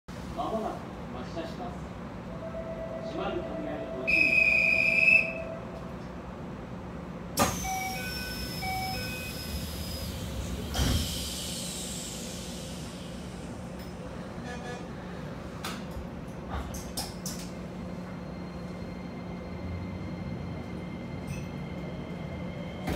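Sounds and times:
shrill steady tone: 2.3s - 5.8s
train doors hissing: 7.4s - 15.9s.

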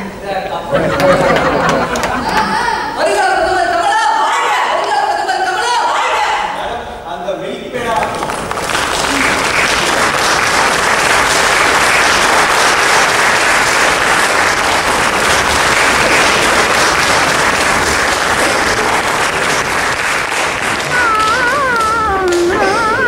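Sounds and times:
audience applauding: 0.9s - 2.6s, 7.8s - 23.0s.

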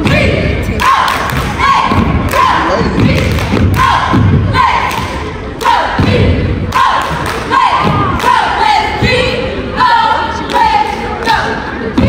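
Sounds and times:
rhythmic stomps and claps: 0.0s - 9.2s.

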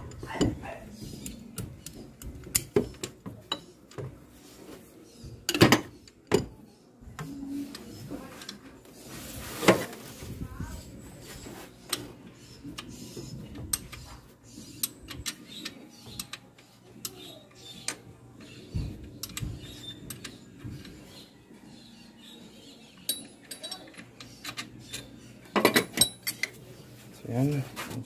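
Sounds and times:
hand tools clinking on metal: 23.0s - 26.6s.

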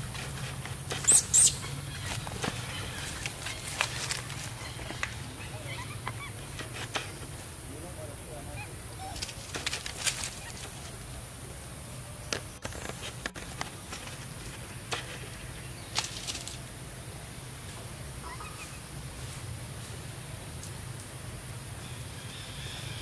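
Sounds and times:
high hiss: 0.0s - 1.9s.

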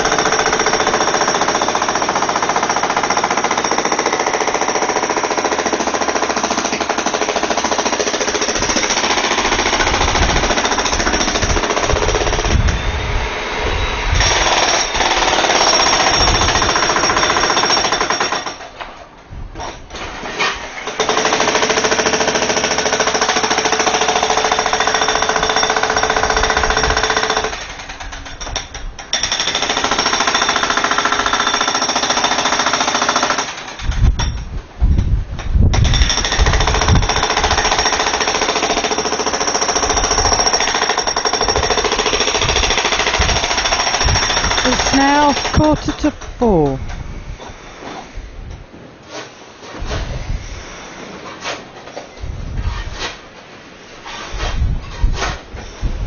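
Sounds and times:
jackhammer hammering: 0.0s - 12.8s, 14.2s - 18.7s, 20.8s - 34.4s, 35.7s - 46.7s.

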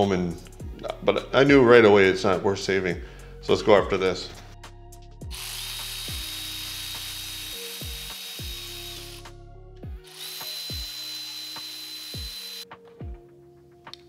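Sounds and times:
background music with steady beat: 0.0s - 14.0s
cordless power tool whine: 5.3s - 9.3s, 10.0s - 12.6s.

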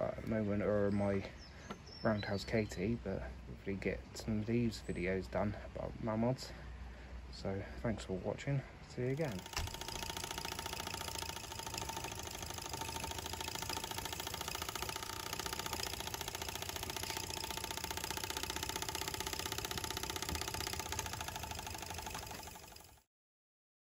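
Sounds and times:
small steam engine exhaust beats: 9.1s - 23.0s.

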